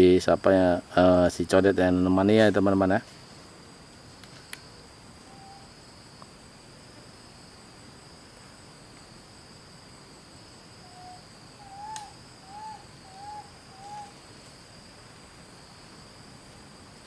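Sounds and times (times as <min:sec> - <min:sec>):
forest insects droning: 0:00.0 - 0:17.0
faint sharp click: 0:04.2 - 0:04.7, 0:11.9 - 0:12.1
animal hooting calls: 0:10.9 - 0:14.2.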